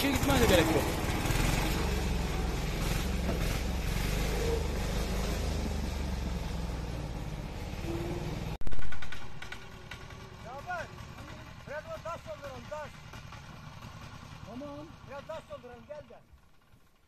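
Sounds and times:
walking tractor engine chugging: 0.0s - 4.9s, 8.8s - 17.0s.

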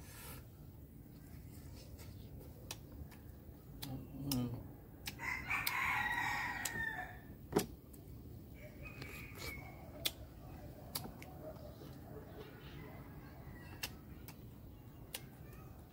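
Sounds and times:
rooster crowing: 5.2s - 7.3s, 8.5s - 10.0s.

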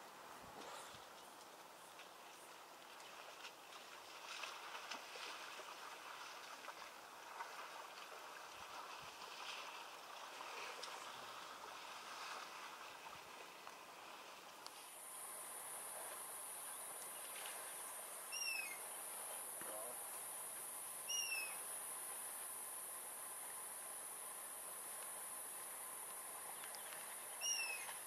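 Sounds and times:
elephants splashing in water: 2.1s - 19.2s.

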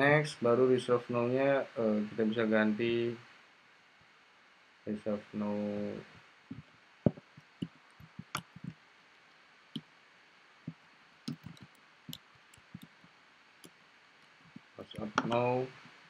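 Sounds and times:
keyboard typing clicks: 11.3s - 12.9s.

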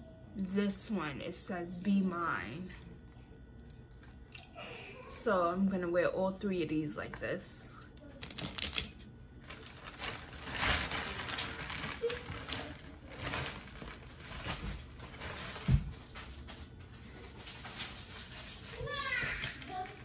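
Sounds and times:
packaging rustling: 9.4s - 16.4s.

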